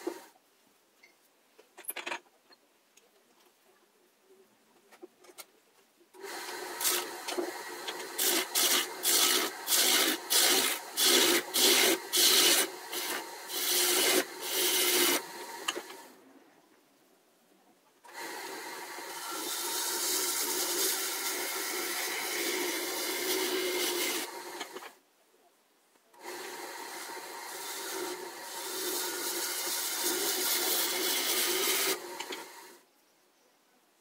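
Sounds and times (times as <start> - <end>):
wood lathe motor hum: 6.2 - 16.0, 18.2 - 24.8, 26.2 - 32.6
turning tool scraping wood: 6.4 - 16.0, 19.1 - 24.9, 26.4 - 32.6.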